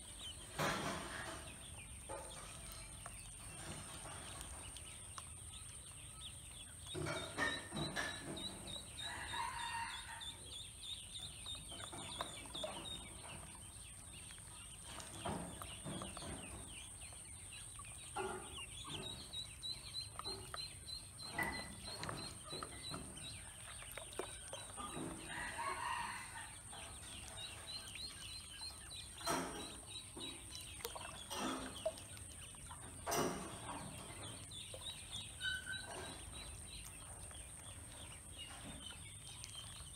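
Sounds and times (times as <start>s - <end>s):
ducklings peeping: 0.0s - 39.9s
small water splashes: 21.2s - 35.4s, 36.0s - 39.9s.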